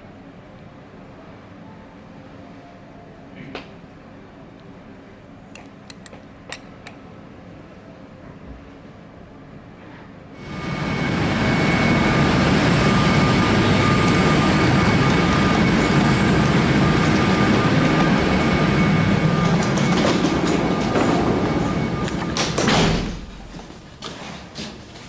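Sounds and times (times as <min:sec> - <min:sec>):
jet engine drone and whine: 0:05.8 - 0:24.2.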